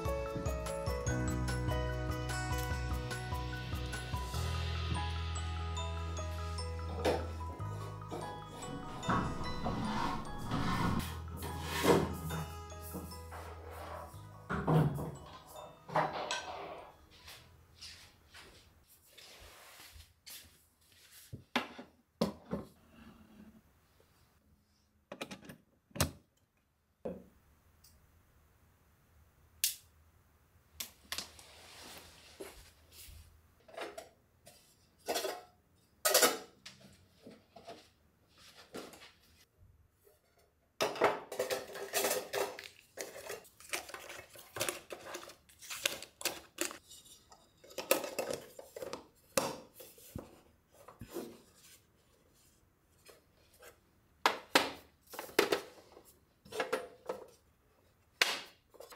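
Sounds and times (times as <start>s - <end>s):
metal tin lids clinking: 35.0s - 36.6s, 40.8s - 49.0s.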